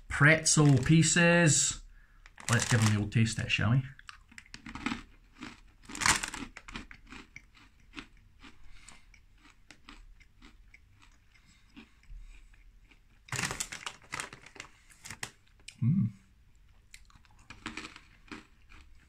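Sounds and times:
crackly chewing: 2.2 - 3.0, 3.9 - 15.8, 16.5 - 19.0
pretzel crunching bite: 2.4 - 3.0, 4.0 - 11.9, 17.0 - 19.0.

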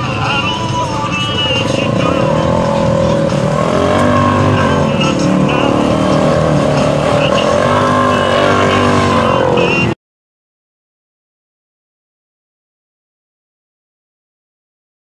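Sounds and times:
engine running at high revs: 0.0 - 10.0.

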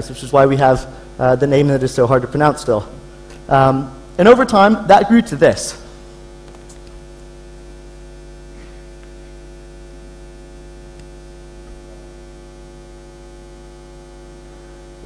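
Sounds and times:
electrical mains hum: 0.0 - 15.0.

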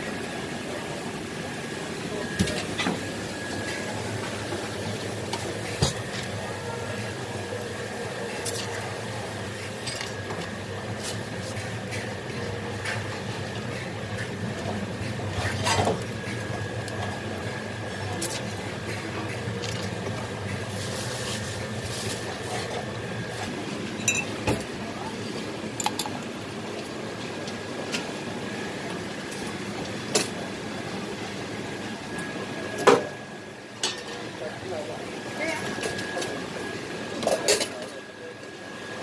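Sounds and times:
steady background hum: 0.0 - 39.0
glass cups and metal mugs clinking: 24.0 - 24.4.

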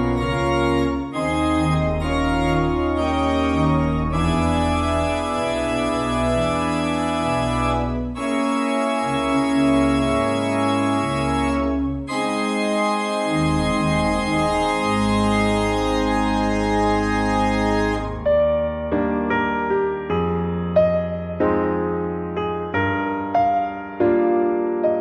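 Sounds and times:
organ playing sustained chords: 0.0 - 18.3.

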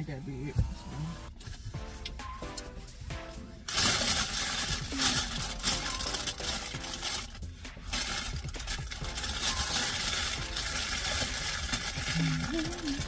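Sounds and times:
plastic bag rustling and crinkling: 3.7 - 13.0.

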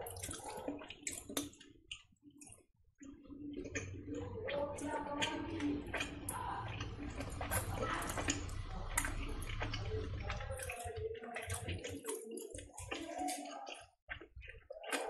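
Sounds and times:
sticky crackles and squelches: 0.0 - 15.0
low hum: 3.5 - 10.8.

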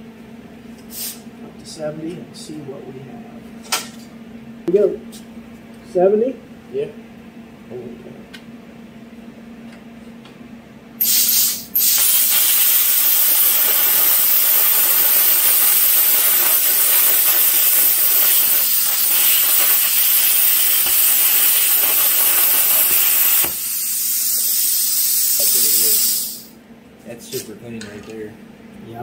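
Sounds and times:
plasma cutter arc hissing: 11.0 - 26.6.

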